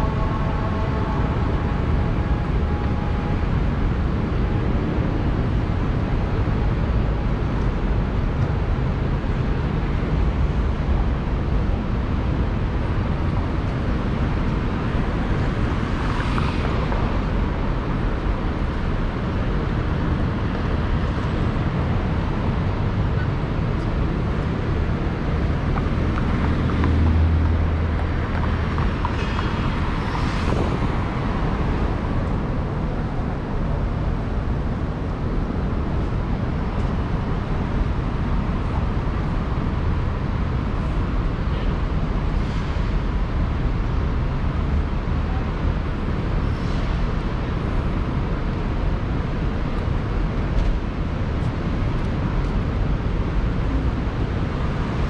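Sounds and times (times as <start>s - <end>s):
low rumbling airport ambience: 0.0s - 55.0s.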